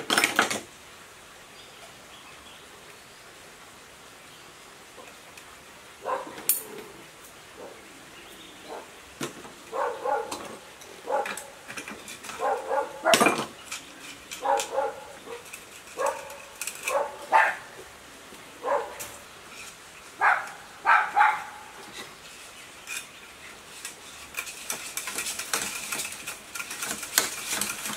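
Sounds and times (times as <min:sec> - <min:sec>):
dog barking: 0:06.0 - 0:06.4, 0:08.7 - 0:08.9, 0:09.7 - 0:10.4, 0:11.0 - 0:11.5, 0:12.4 - 0:13.2, 0:14.4 - 0:15.4, 0:16.0 - 0:17.7, 0:18.6 - 0:19.1, 0:20.2 - 0:21.7.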